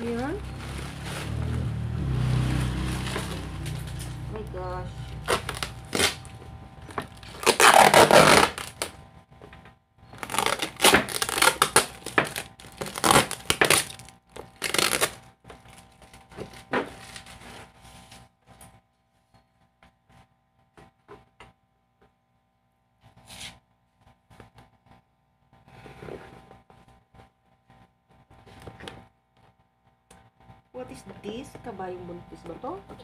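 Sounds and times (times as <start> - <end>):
plastic packaging crinkling: 5.1 - 9.0, 10.2 - 17.5.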